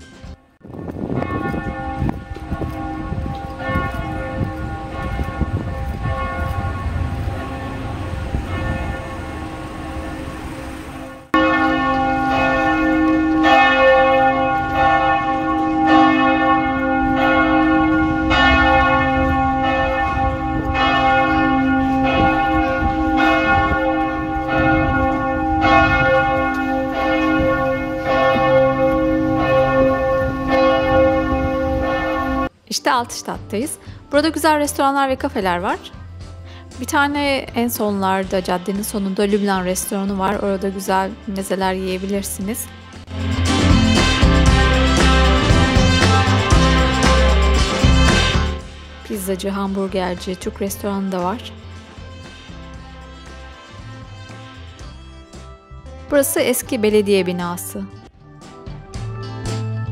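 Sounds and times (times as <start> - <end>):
church bells ringing: 0.0 - 32.6.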